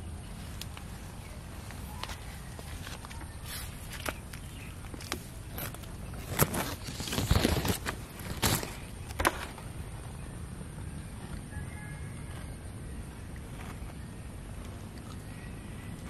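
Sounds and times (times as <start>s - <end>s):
dry leaves and twigs rustling: 0.3s - 10.3s
twigs snapping: 3.9s - 9.5s.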